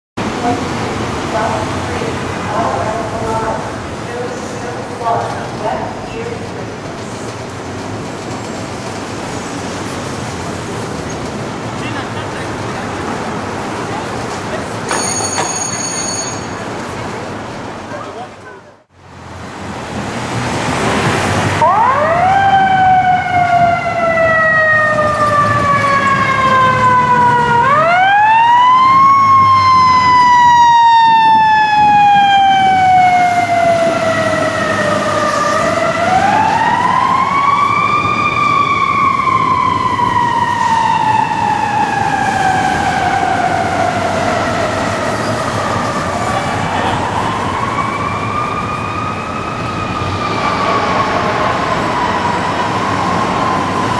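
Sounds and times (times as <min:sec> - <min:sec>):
fire engine siren wailing: 0:21.4 - 0:53.9.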